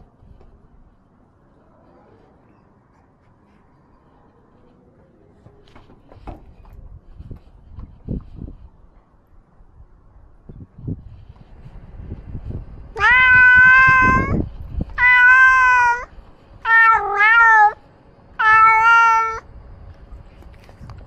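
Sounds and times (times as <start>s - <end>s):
cat meowing: 12.9s - 17.8s, 18.4s - 19.5s.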